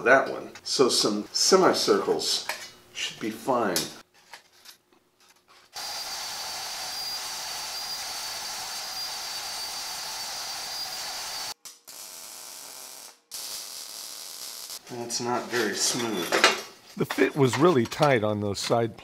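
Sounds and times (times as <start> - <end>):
bandsaw cutting steel: 5.8 - 14.8
welder hissing and crackling: 5.8 - 15.4.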